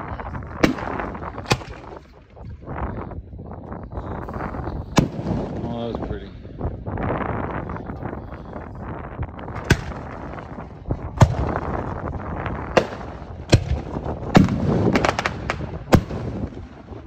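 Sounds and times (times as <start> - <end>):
firework shells bursting: 9.6 - 11.9, 12.7 - 16.9
small firework cracks: 12.7 - 17.0.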